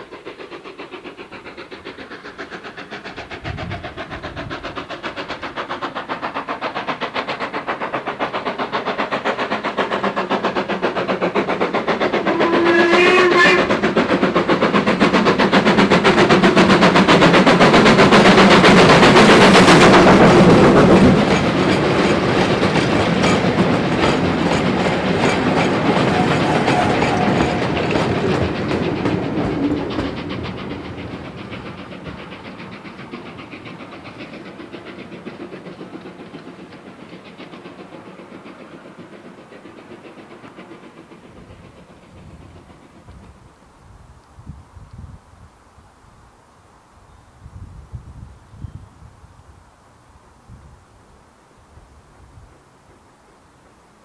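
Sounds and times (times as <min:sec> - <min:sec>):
steam locomotive passing: 0:00.0 - 0:54.0
wagons rattling over rail joints: 0:00.8 - 0:43.4.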